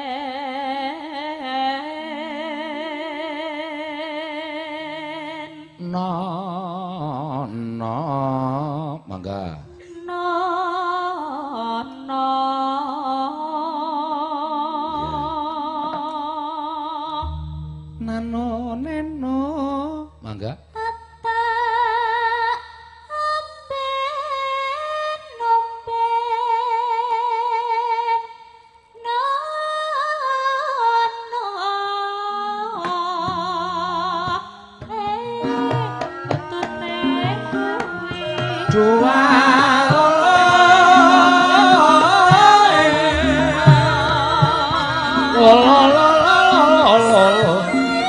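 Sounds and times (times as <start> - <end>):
woman singing with vibrato: 0.0 - 7.0, 9.7 - 20.2, 20.8 - 28.4, 29.0 - 48.0
gamelan ensemble with drumming: 17.2 - 18.8, 34.3 - 48.0.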